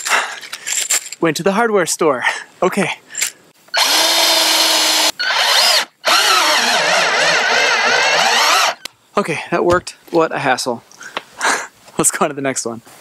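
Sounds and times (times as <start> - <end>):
cordless drill driving screws into wood: 3.7 - 8.9.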